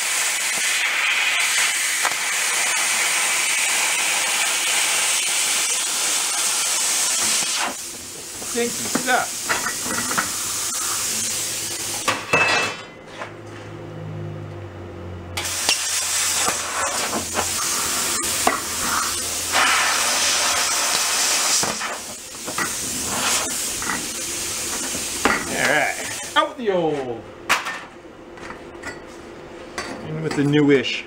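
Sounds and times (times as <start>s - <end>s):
plasma cutter hissing and crackling: 0.0s - 12.3s, 15.4s - 26.4s.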